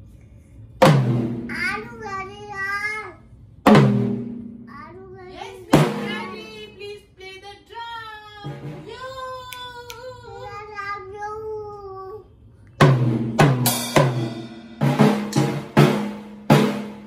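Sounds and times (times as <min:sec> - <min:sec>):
drum and cymbal hits: 0:00.8 - 0:01.7, 0:03.6 - 0:04.7, 0:05.7 - 0:06.4, 0:08.4 - 0:09.1, 0:12.8 - 0:17.0
young child singing: 0:09.9 - 0:12.3.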